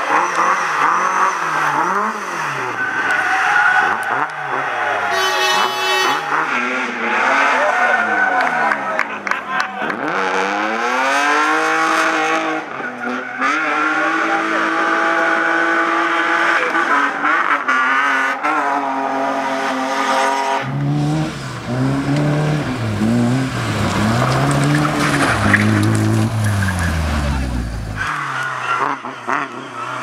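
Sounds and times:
car engine revving up and down: 0.0 - 8.9, 9.8 - 30.0
rally car engine revving: 0.0 - 30.0
tyres squealing: 22.4 - 28.8.

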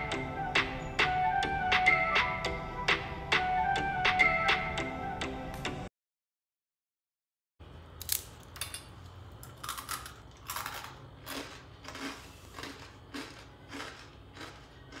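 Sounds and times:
fried snack crunching: 9.4 - 15.0.

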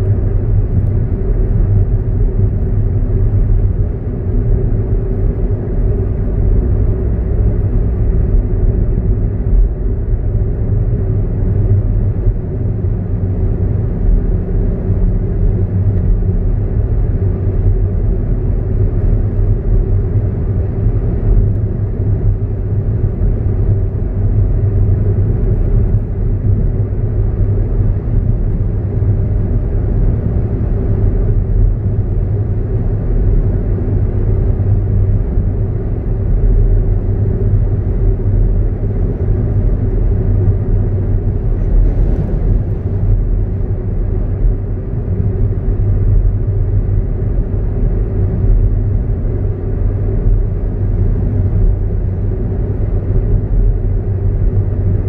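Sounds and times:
car engine rumble inside cabin: 0.0 - 55.0
tyre road noise: 0.0 - 55.0.

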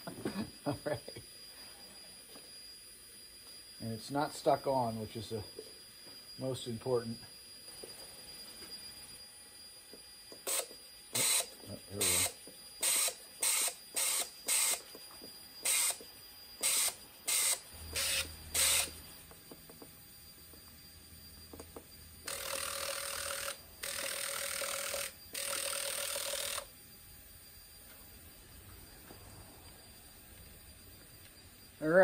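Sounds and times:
buzzing injector tone: 10.3 - 15.0, 15.6 - 19.4, 21.5 - 26.8.

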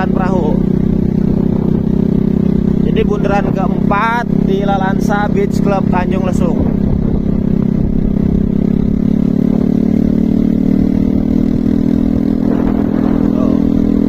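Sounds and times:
low rumble: 0.0 - 10.2
motorcycle engine running: 0.0 - 14.0.

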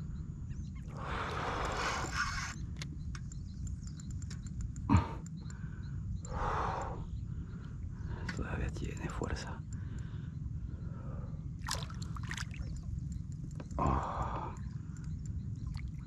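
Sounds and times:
wind rumble on microphone: 0.0 - 16.0
fish thrashing and splashing: 11.6 - 12.8.

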